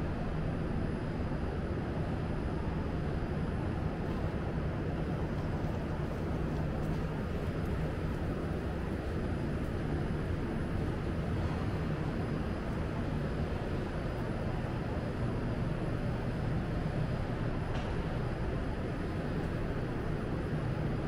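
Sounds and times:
metro station rumbling hum: 0.0 - 21.0.

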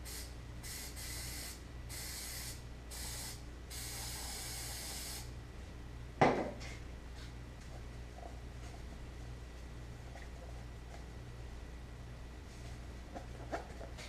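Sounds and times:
aerosol spray can hissing: 0.0 - 5.3.

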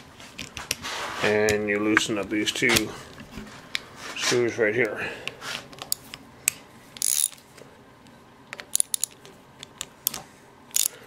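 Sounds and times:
ratchet wrench clicking: 7.0 - 7.4, 8.7 - 9.2, 10.7 - 11.0
metal clicks: 8.5 - 11.0.

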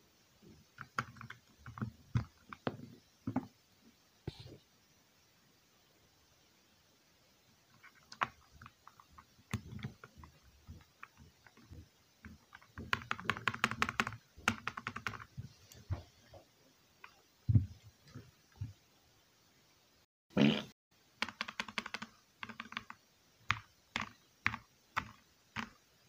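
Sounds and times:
mechanical keyboard typing: 0.8 - 2.6, 12.5 - 15.3, 21.2 - 25.8.

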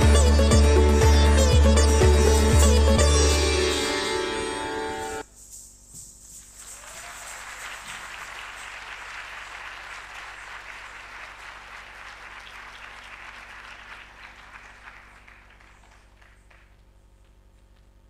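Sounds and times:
audience applauding: 6.7 - 16.9.

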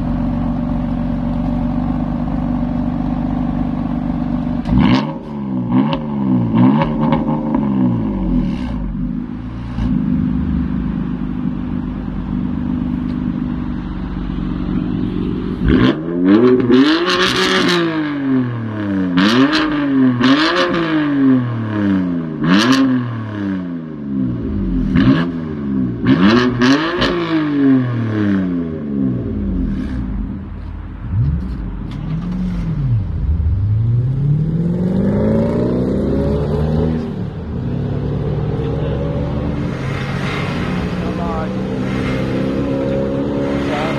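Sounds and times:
car engine idling and revving: 0.0 - 43.9.

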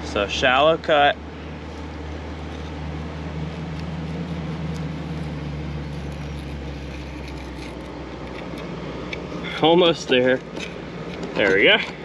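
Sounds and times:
machine humming: 0.0 - 12.0.

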